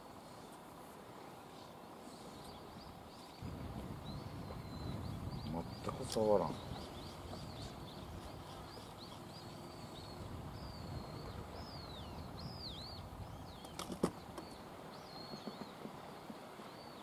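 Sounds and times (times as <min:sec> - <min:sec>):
birds chirping: 0:01.4 - 0:17.0.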